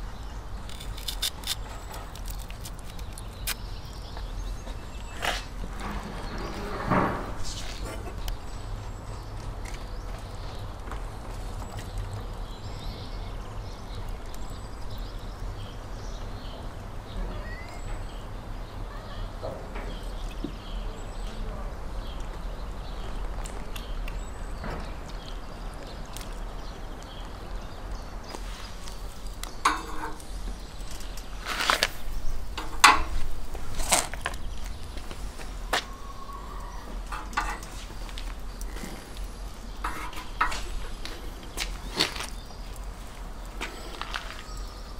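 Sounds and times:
small birds chirping: 0:00.0 - 0:44.9
metal skewers clinking on rack: 0:29.6 - 0:30.3, 0:37.1 - 0:37.8.

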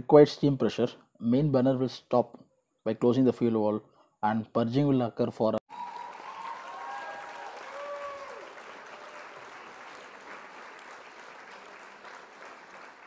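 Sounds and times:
crowd applause: 0:05.7 - 0:13.0.

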